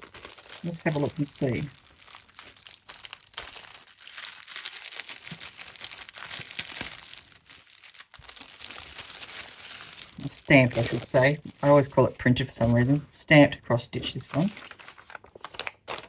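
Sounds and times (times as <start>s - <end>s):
plastic bag crinkling: 0.0s - 13.0s, 14.3s - 16.0s.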